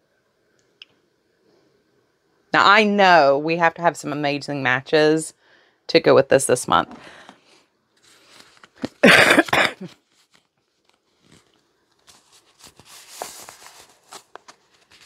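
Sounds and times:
woman coughing: 9.0 - 10.0.

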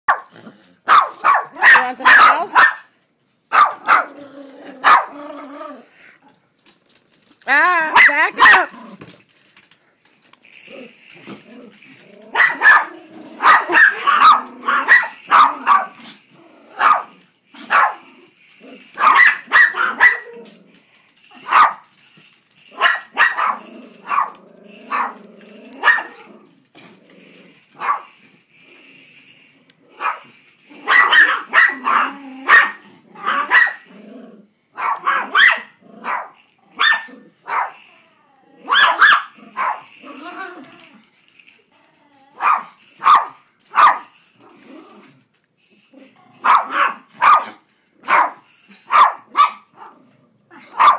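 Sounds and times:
dog growling: 0.3 - 0.9, 4.0 - 6.4, 10.5 - 19.0, 20.2 - 21.0, 23.5 - 27.8, 31.7 - 34.6, 35.8 - 38.8, 39.4 - 41.1, 41.7 - 42.8, 44.4 - 46.4
small dogs yapping: 3.6 - 5.9, 10.7 - 20.6, 22.7 - 26.5, 29.9 - 34.0, 34.8 - 40.9, 42.0 - 45.1, 46.4 - 49.9, 50.5 - 50.9.

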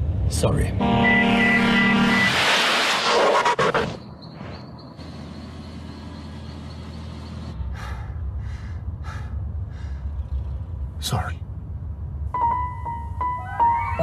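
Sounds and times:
low rumble with short breaths: 7.5 - 11.0.

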